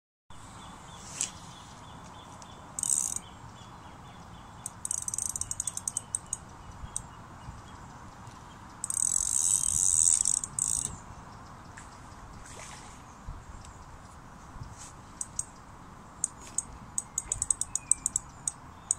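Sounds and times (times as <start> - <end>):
fishing reel drag ticking and buzzing: 2.8 - 3.2, 4.6 - 7.0, 8.8 - 11.0, 15.2 - 15.5, 16.2 - 18.9.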